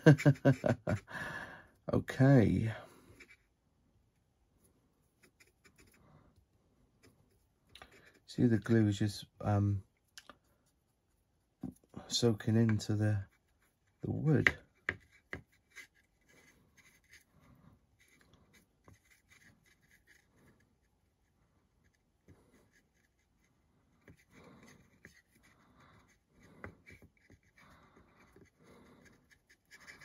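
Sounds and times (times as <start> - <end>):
paintbrush scratching on wood: 12.6 - 17.3, 18.0 - 30.0.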